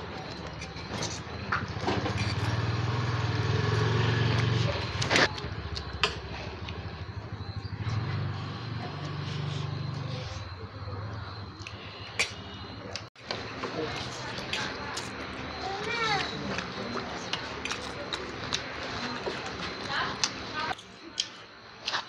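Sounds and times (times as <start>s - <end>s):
small engine running: 1.8s - 11.0s.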